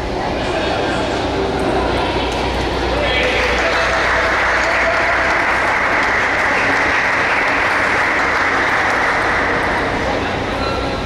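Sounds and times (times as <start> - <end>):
spectators clapping: 2.3 - 10.2.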